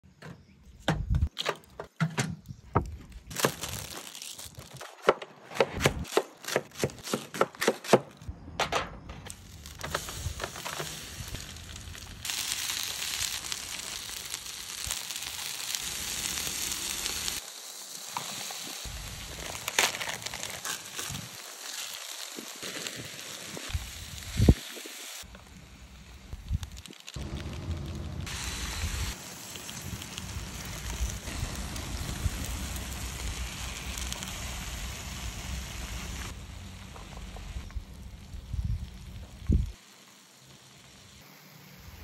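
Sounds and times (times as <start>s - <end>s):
plastic bag rustling: 3.0s - 5.0s, 18.2s - 24.0s
foil tray crinkling: 3.2s - 5.0s, 19.0s - 23.6s
liquid sizzling: 9.4s - 41.3s.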